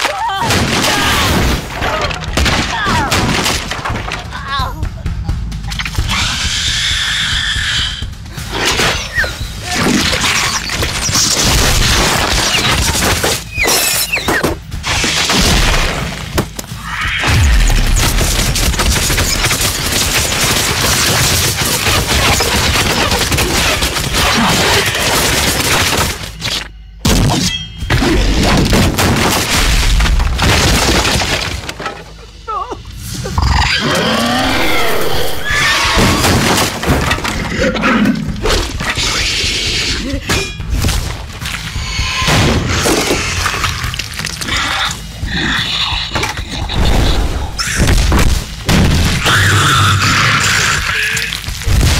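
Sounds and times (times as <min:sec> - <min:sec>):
crashing and breaking effects: 0:00.0 - 0:04.4, 0:08.5 - 0:32.1, 0:35.3 - 0:39.2
film music: 0:00.0 - 0:51.9
voice: 0:04.3 - 0:05.8, 0:32.5 - 0:32.8.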